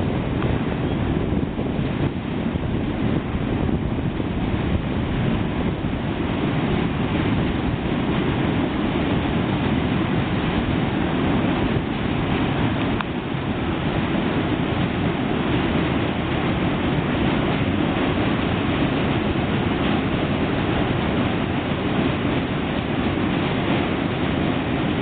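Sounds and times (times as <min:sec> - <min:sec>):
freight train rumbling on bridge: 0:00.0 - 0:25.0.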